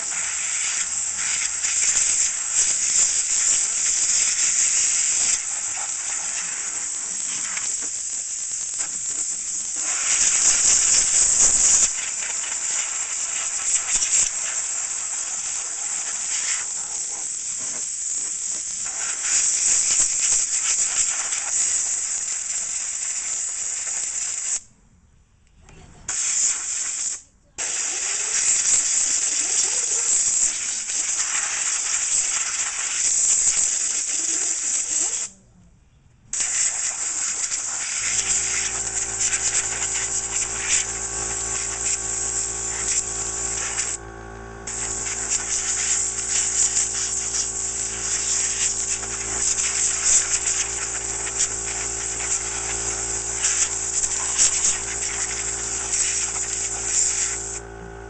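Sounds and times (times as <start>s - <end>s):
air compressor motor running: 0.0s - 23.8s, 36.4s - 58.0s
compressed air hissing from blow gun: 0.0s - 24.7s, 26.1s - 35.3s, 36.3s - 44.0s, 44.6s - 57.7s.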